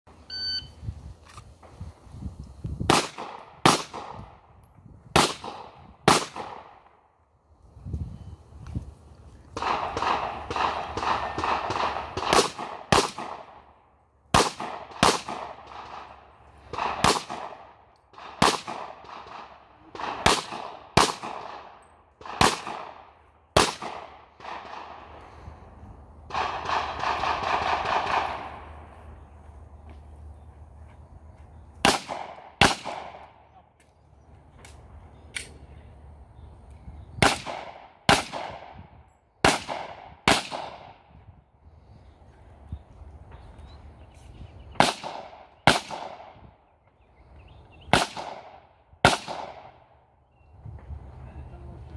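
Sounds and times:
pistol shots echoing: 5.2 - 6.9, 9.6 - 13.7, 14.3 - 25.0, 26.3 - 28.8, 31.8 - 33.5, 37.2 - 38.8, 39.4 - 41.0, 44.8 - 46.4, 47.9 - 49.9.

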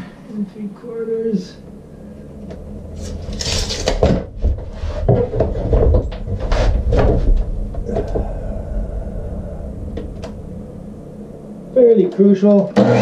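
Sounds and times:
wooden board clunking and sliding: 3.4 - 8.2.

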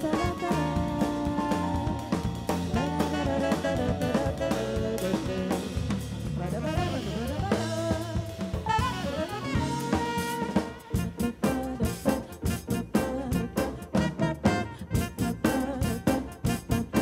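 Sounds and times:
drum kit: 0.0 - 17.0
electric bass: 0.0 - 17.0
saxophone: 0.0 - 17.0
woman singing: 6.4 - 8.5, 10.9 - 17.0.

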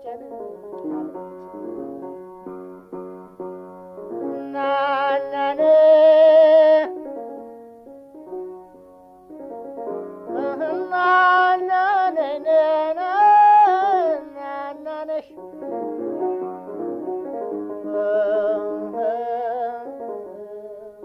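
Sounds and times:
instrumental backing music: 0.0 - 21.0
high voice singing with vibrato: 4.2 - 7.0, 10.3 - 15.4.

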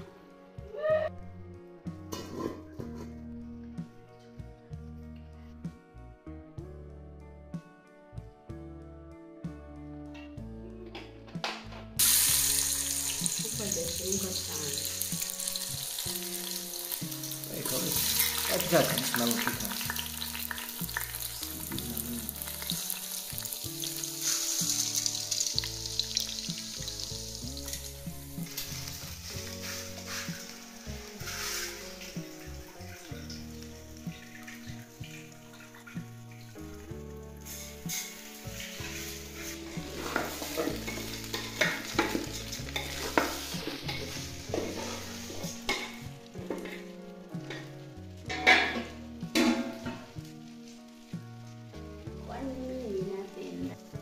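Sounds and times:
rice sizzling in hot oil: 12.0 - 54.0
steady hiss: 26.5 - 32.6
wooden spoon scraping rice in pot: 29.2 - 30.6, 31.2 - 32.0.

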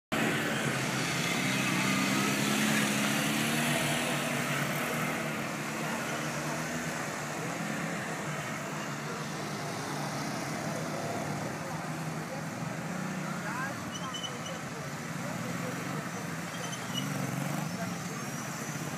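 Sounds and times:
motorcycle engines at low revs: 0.2 - 18.9.

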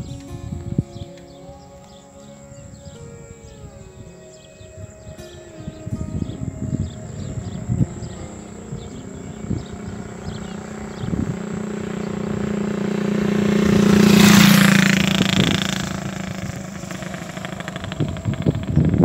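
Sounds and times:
motorcycle passing by: 0.0 - 19.0.

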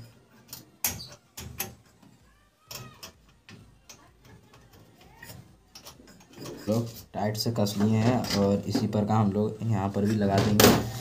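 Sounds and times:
metal clicks and knocks: 0.0 - 6.9.

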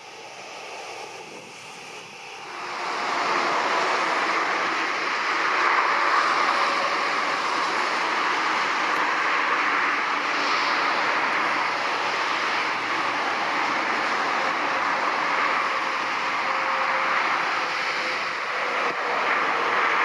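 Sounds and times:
jet engines roaring: 0.0 - 20.0.

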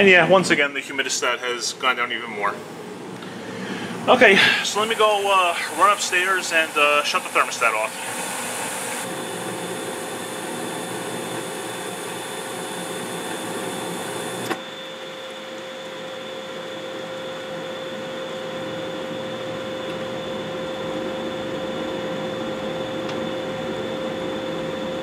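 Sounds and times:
gas burners hissing: 0.0 - 14.7
furnace inducer fan whirring: 0.0 - 25.0.

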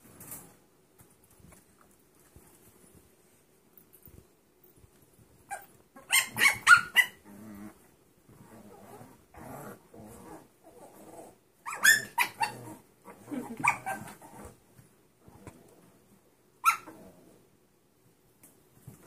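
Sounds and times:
puppies yipping: 5.5 - 7.2
puppies growling: 6.0 - 14.6.

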